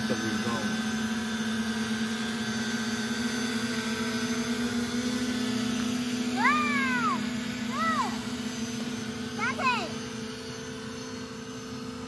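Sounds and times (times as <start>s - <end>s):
drone propellers humming: 0.0s - 12.0s
short rising falling cries: 6.3s - 8.3s.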